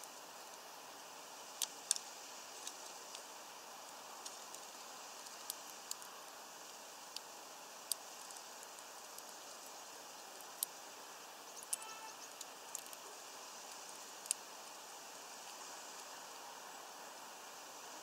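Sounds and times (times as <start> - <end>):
faint hiss: 0.0 - 18.0
bird cracking seeds: 4.2 - 6.2, 11.5 - 13.0.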